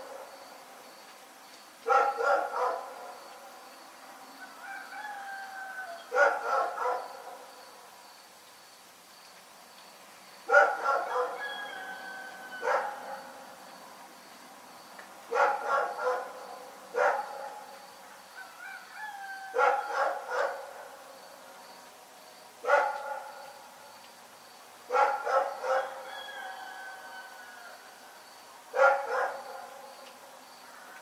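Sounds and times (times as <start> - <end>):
dog barking: 1.8 - 3.1, 6.1 - 7.4, 10.5 - 11.8, 12.6 - 13.3, 15.3 - 17.7, 19.5 - 20.8, 22.6 - 23.4, 24.9 - 26.1, 28.7 - 29.7.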